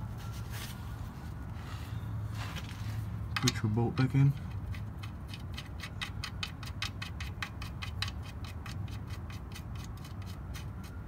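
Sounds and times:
ratchet wrench clicking: 4.4s - 10.7s.

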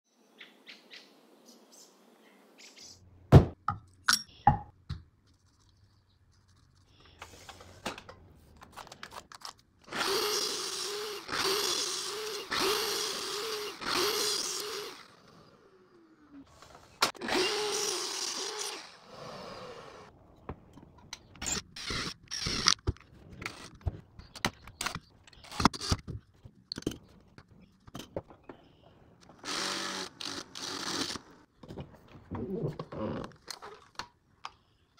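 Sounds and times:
saw blade winding down: 9.9s - 15.8s, 17.0s - 20.1s, 29.4s - 31.5s
miter saw cutting wood: 9.9s - 16.0s, 17.0s - 20.1s, 29.2s - 31.5s.

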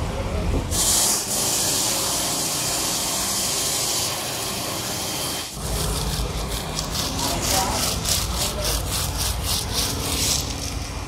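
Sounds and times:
pressure washer spray hissing: 0.7s - 5.6s.

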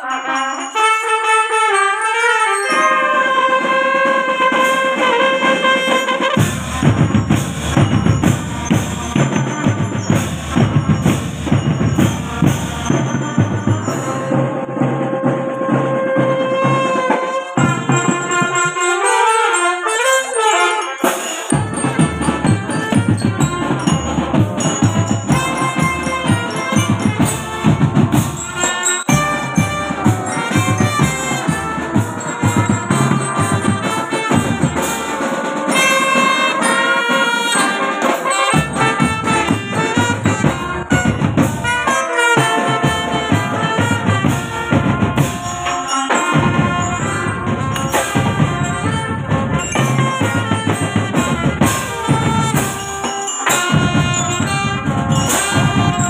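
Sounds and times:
brass playing tune: 0.0s - 56.0s
bass and snare drums: 4.5s - 18.8s, 21.4s - 56.0s.

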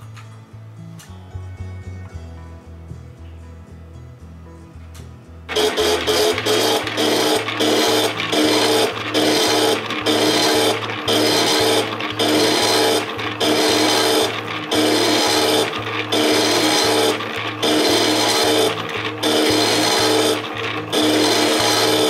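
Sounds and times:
stepper motors buzzing whine: 5.5s - 22.0s.

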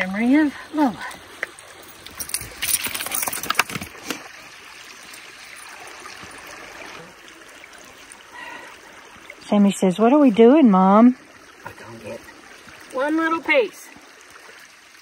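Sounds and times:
creek trickling over stones: 0.0s - 15.0s
sharp clicks and rustling: 2.0s - 4.2s.

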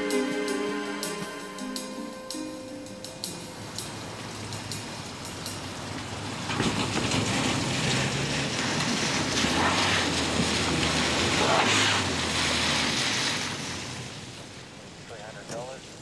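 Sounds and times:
car engine hum: 0.0s - 16.0s
tyres hissing on wet road: 3.4s - 16.0s.

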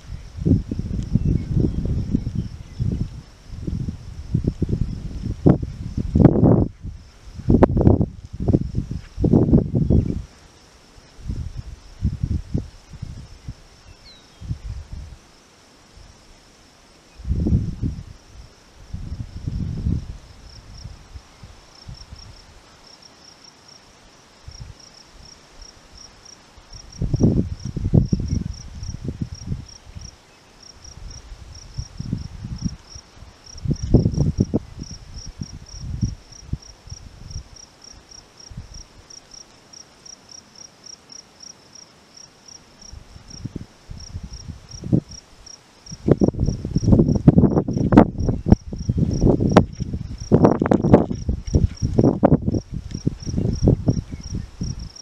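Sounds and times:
wind buffeting microphone: 0.0s - 10.4s, 11.1s - 15.2s, 17.2s - 22.6s, 26.7s - 37.6s, 42.8s - 55.0s
insect chirping: 0.0s - 55.0s.

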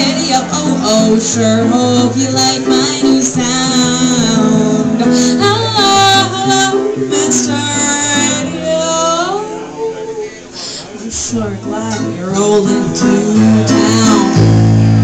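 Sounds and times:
woman singing with vibrato: 0.0s - 10.4s, 11.0s - 14.9s.

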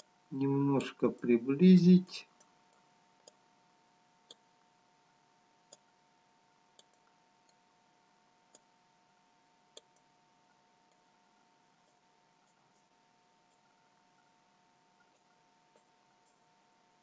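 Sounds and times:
faint electrical hum: 0.0s - 17.0s
computer mouse clicks: 2.4s - 3.4s, 5.6s - 6.0s, 6.7s - 7.6s, 8.5s - 8.7s, 9.7s - 10.1s, 15.0s - 16.5s.

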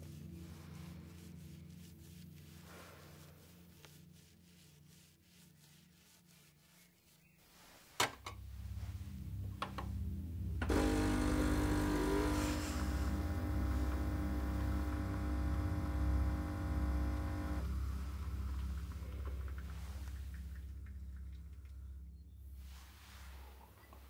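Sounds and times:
coffee machine pump buzz: 10.6s - 18.3s
coffee machine low hum: 10.6s - 20.7s.

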